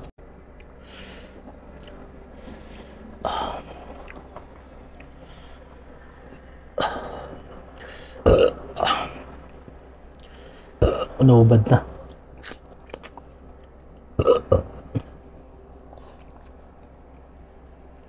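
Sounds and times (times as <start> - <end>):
man burping: 8.2 - 9.2, 10.8 - 11.2, 14.2 - 15.2.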